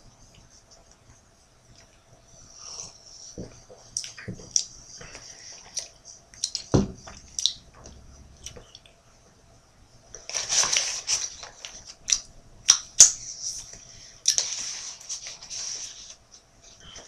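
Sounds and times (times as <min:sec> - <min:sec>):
wet mouth clicks and smacks: 0:05.8 - 0:09.0.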